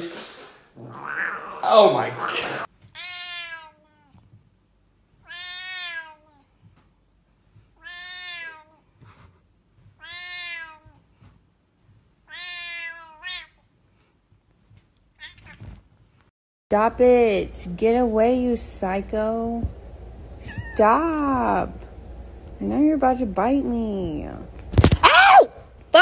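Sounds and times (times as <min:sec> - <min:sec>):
cat meowing: 0:00.8 - 0:01.8, 0:02.9 - 0:04.2, 0:05.2 - 0:06.5, 0:07.8 - 0:08.8, 0:10.0 - 0:11.0, 0:12.2 - 0:13.6, 0:15.2 - 0:15.8.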